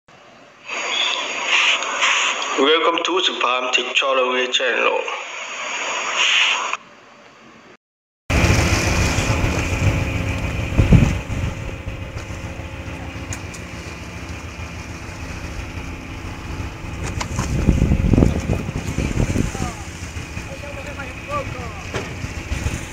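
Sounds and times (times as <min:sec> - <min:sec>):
wind: 0:00.1 - 0:04.7, 0:05.5 - 0:22.9
sea noise: 0:00.1 - 0:07.0, 0:08.3 - 0:22.9
boat engine idling: 0:08.3 - 0:22.9
engine knock: 0:08.3 - 0:22.9.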